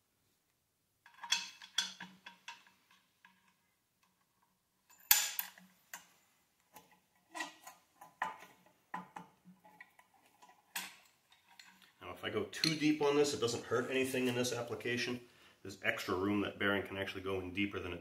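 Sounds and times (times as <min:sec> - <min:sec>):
metal clicks and clinks: 0:01.1 - 0:03.6, 0:04.8 - 0:06.1, 0:06.7 - 0:12.0.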